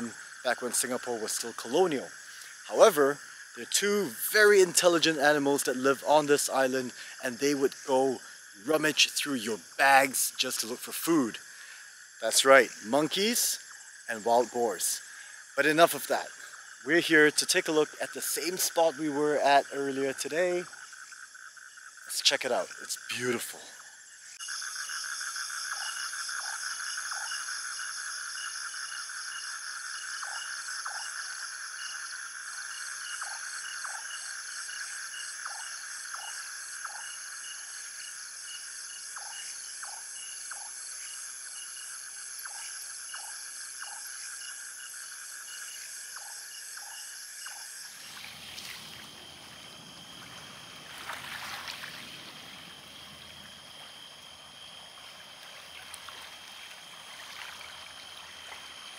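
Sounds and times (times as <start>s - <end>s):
frog calls: 0.0s - 58.9s
insects trilling: 0.0s - 58.9s
water washing on shore: 50.2s - 52.7s, 55.4s - 58.7s.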